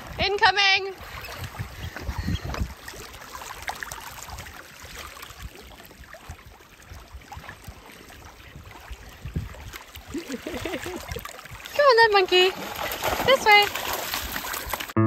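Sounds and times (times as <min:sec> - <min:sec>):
wind rumble on microphone: 0:00.0 - 0:03.0, 0:05.3 - 0:11.8
sea water lapping and splashing: 0:00.0 - 0:15.0.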